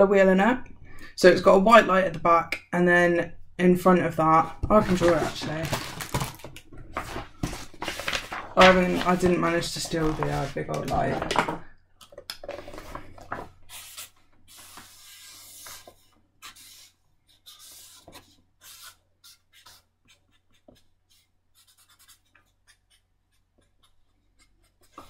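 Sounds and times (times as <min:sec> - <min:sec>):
pen scratching on paper: 0:13.7 - 0:25.0.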